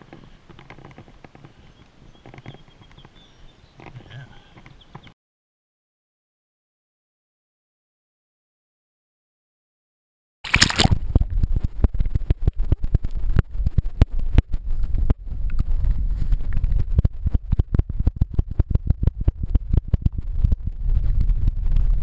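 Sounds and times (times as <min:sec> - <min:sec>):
sharp underwater clicks and knocks: 0:00.0 - 0:03.1, 0:03.8 - 0:05.1, 0:10.5 - 0:22.0
underwater current rumble: 0:10.5 - 0:22.0.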